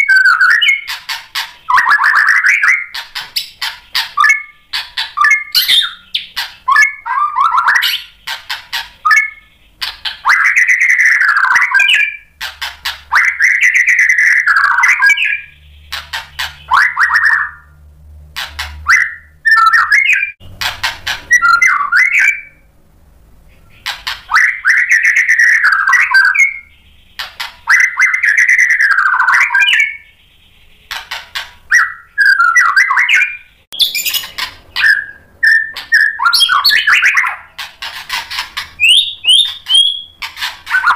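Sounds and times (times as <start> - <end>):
bird singing whistled phrases: 0.0 - 1.0, 1.7 - 8.2, 9.0 - 12.3, 13.1 - 15.7, 16.6 - 17.8, 18.8 - 20.4, 21.3 - 22.7, 23.6 - 26.9, 27.6 - 30.8, 31.7 - 37.5, 38.8 - 40.9.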